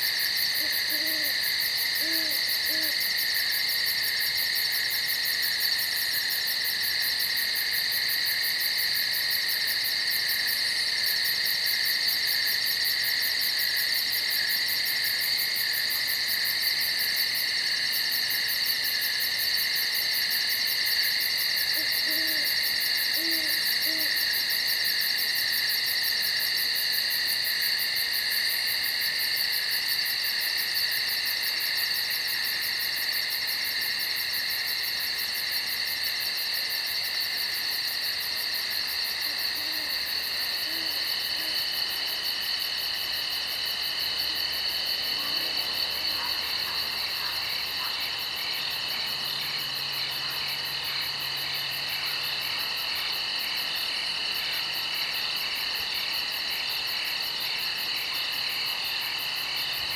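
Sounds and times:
night insects trilling: 0:00.0 - 0:59.9
owl hooting: 0:00.6 - 0:01.4, 0:02.0 - 0:03.1, 0:21.8 - 0:24.2, 0:40.6 - 0:41.6.

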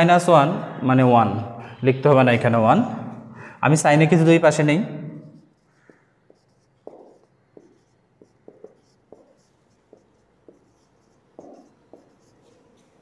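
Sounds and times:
marker pen writing on whiteboard: 0:04.2 - 0:13.0.

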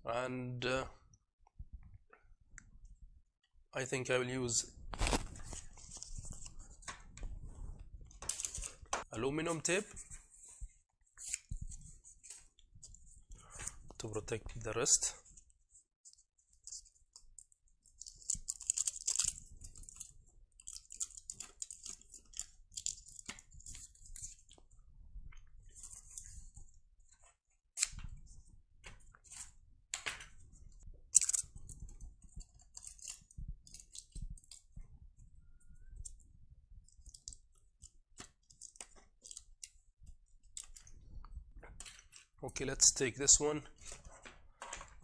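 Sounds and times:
foil tape crinkling: 0:05.0 - 0:06.7, 0:17.8 - 0:24.5.

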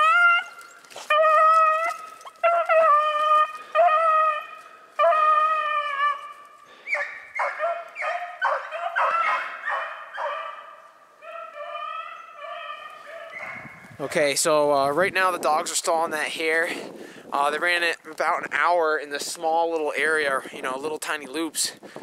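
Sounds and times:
dogs baying: 0:00.0 - 0:13.8.

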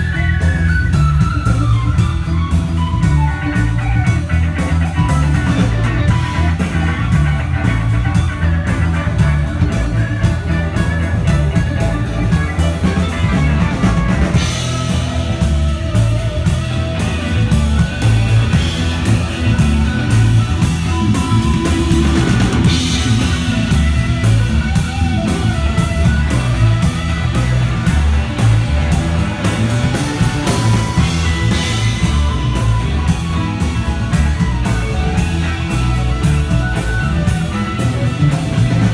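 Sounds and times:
rock band playing: 0:00.0 - 0:38.9.

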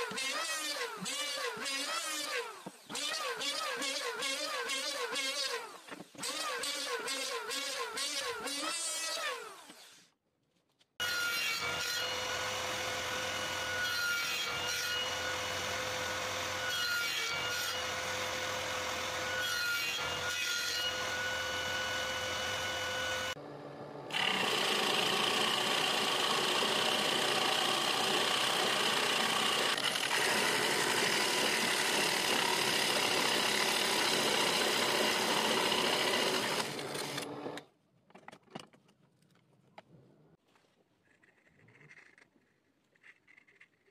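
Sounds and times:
table saw running: 0:11.1 - 0:37.6
drill press boring into wood: 0:24.1 - 0:37.6.

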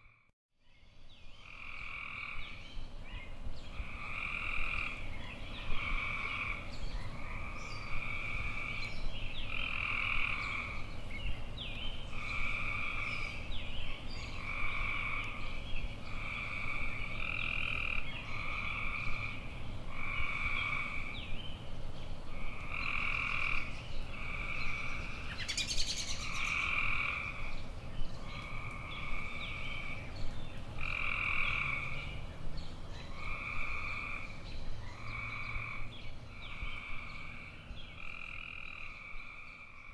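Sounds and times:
frogs calling: 0:03.7 - 0:10.9, 0:12.1 - 0:13.4, 0:14.3 - 0:15.5, 0:16.1 - 0:21.2, 0:22.3 - 0:27.6, 0:28.2 - 0:30.1, 0:30.8 - 0:32.2, 0:33.1 - 0:39.9.

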